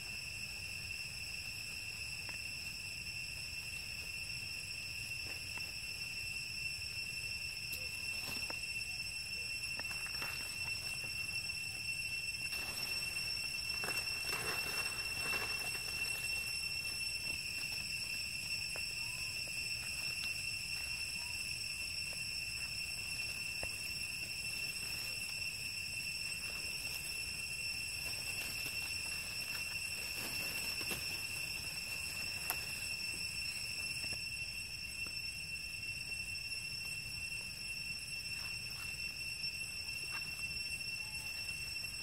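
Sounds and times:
high-pitched insect drone: 0.0 - 42.0
rustles in dry leaves: 9.4 - 34.2.

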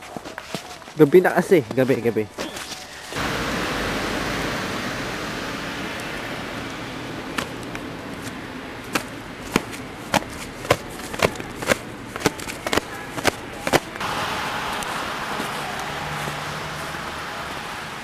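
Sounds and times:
footsteps on snow: 7.3 - 17.8.

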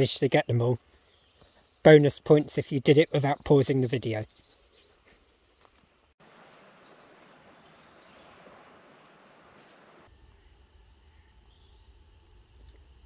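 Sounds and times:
faint bird calls: 4.2 - 11.9.

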